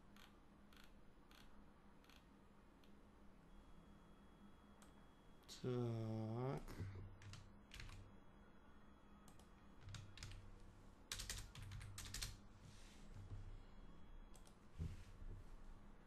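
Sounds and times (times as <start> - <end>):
keyboard typing: 7.2 - 8.0, 9.3 - 10.4, 11.1 - 12.4.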